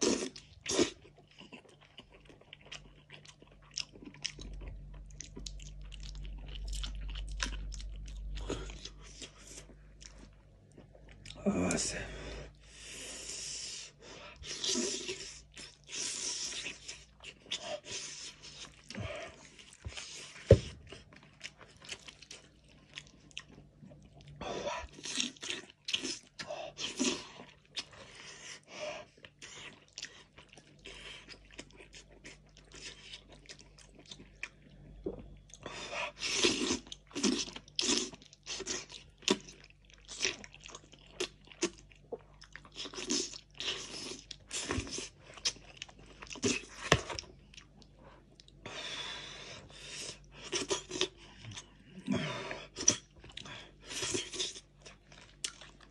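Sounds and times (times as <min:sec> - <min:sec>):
wet chewing and lip smacking: 0:00.0 - 0:11.4, 0:52.6 - 0:55.9.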